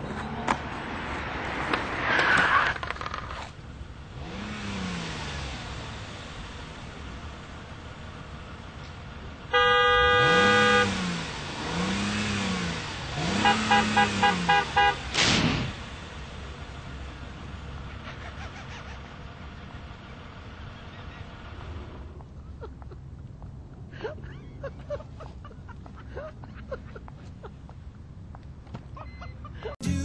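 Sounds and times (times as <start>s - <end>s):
car engine revving: 4.0s - 8.6s, 9.3s - 17.9s
car horn: 9.5s - 11.2s, 13.2s - 15.2s
sharp whack: 15.1s - 15.8s.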